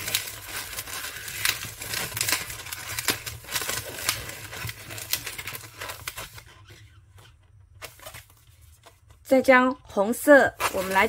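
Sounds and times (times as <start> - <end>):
balloons rubbing and creaking: 0.0 - 7.8, 10.4 - 11.0.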